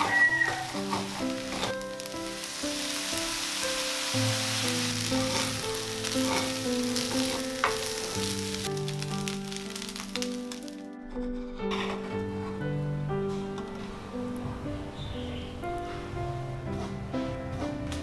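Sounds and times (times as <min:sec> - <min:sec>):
rice sizzling in a hot pan: 0:00.0 - 0:10.8
gentle instrumental music: 0:00.0 - 0:18.0.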